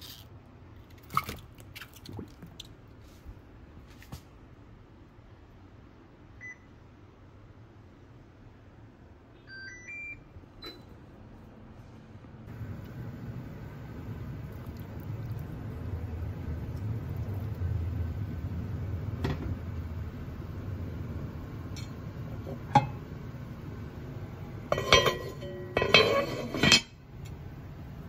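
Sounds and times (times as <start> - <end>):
low steady hum: 0.0 - 28.0
dishes clinking: 21.7 - 23.1, 24.7 - 27.0.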